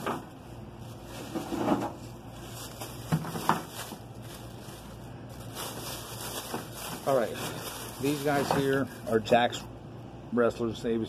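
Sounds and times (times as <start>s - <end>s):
toys knocking and rustling: 3.0s - 4.0s.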